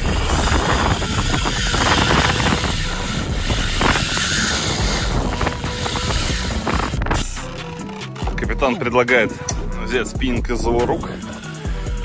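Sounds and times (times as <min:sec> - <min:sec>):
wind buffeting microphone: 0:00.0 - 0:07.4
boat noise: 0:00.0 - 0:08.8.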